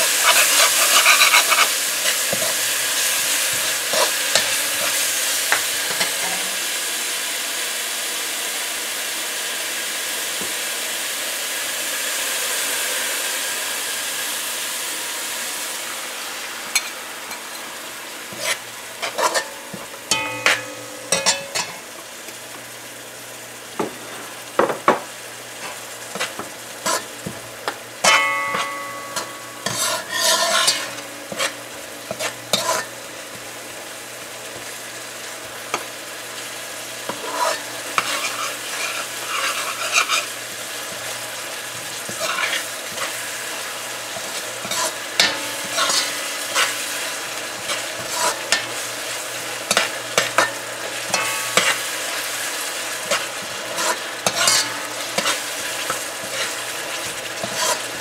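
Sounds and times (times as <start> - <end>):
paste sizzling in hot oil: 0.0 - 58.0
metal spoon scraping a pot: 0.1 - 2.6, 18.3 - 19.5, 28.5 - 32.9, 37.1 - 40.3, 42.1 - 43.2, 44.2 - 46.8, 53.1 - 56.5, 57.4 - 57.9.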